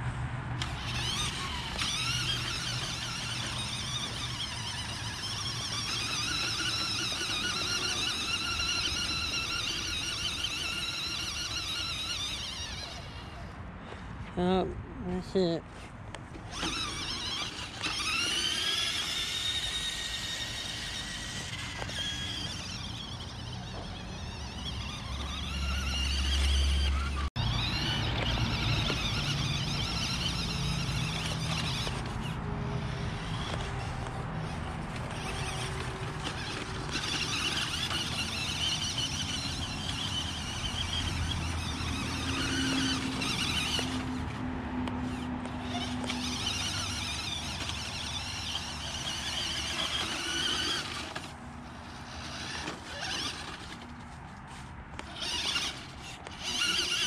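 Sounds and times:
toy truck motor whining: 0:00.6 - 0:14.4, 0:15.8 - 0:57.0.

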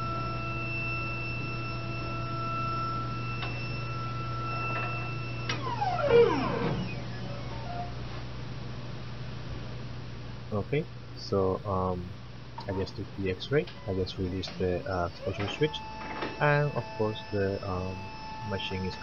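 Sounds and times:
falling whine of machine: 0:00.0 - 0:08.0, 0:12.6 - 0:19.0
scanner high whine: 0:00.0 - 0:08.1, 0:10.5 - 0:19.0
low machine hum: 0:00.0 - 0:19.0.

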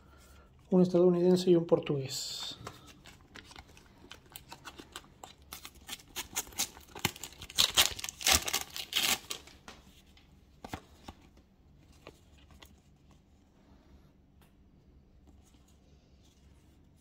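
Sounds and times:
wrapper crinkling: 0:02.8 - 0:09.7
sticker packet tearing: 0:04.2 - 0:09.6.

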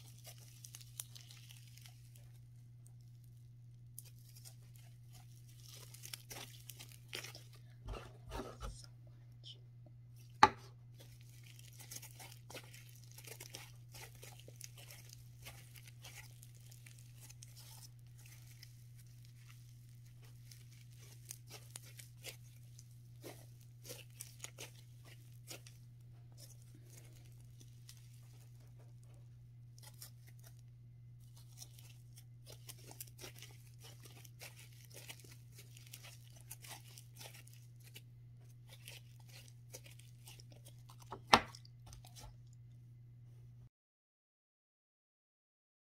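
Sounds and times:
slime crackling and tearing: 0:00.0 - 0:07.6, 0:10.9 - 0:28.8, 0:29.7 - 0:30.6, 0:31.2 - 0:42.3.

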